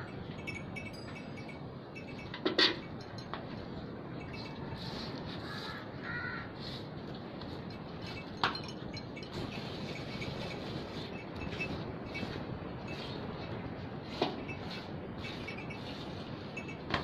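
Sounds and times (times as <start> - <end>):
metallic clink: 0.0 - 3.5
crow cawing: 5.5 - 6.5.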